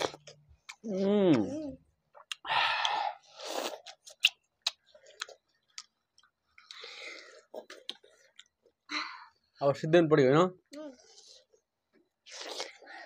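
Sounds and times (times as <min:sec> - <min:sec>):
smacking clicks of chewing: 0:03.9 - 0:06.9, 0:07.6 - 0:08.8.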